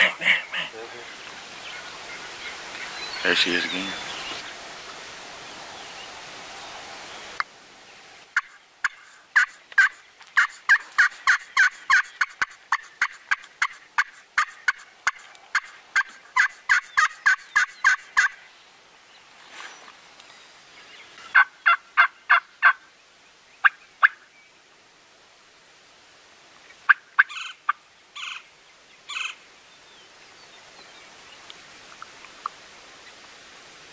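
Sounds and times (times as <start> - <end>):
wild turkey hen yelping: 0.0 - 4.5, 8.4 - 18.4, 21.3 - 22.8, 23.6 - 24.3, 26.8 - 28.5, 29.1 - 29.4.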